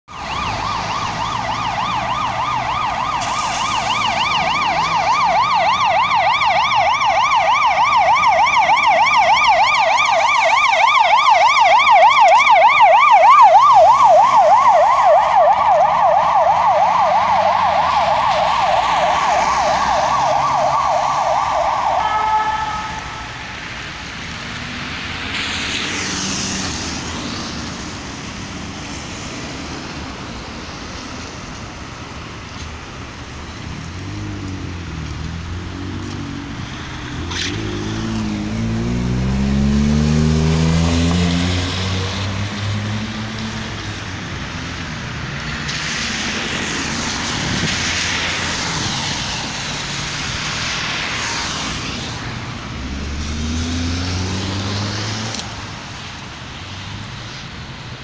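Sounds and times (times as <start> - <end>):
road traffic noise: 0.0 - 58.0
ambulance siren yelping: 0.1 - 23.8
car passing: 0.1 - 32.0, 33.1 - 58.0.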